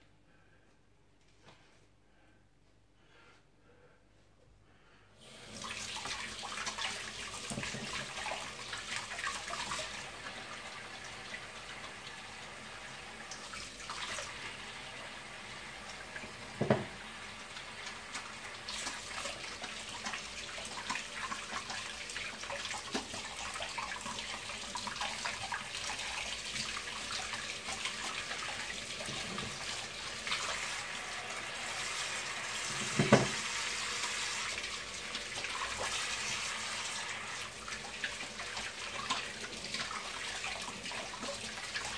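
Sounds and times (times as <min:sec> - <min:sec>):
tap water running into sink: 0:05.3 - 0:41.9
sharp knocks on sink: 0:16.6 - 0:16.9, 0:32.8 - 0:33.4.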